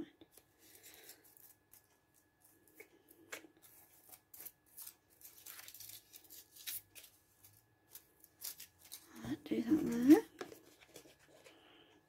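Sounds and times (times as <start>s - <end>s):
paper and plastic crinkling: 3.6s - 11.6s.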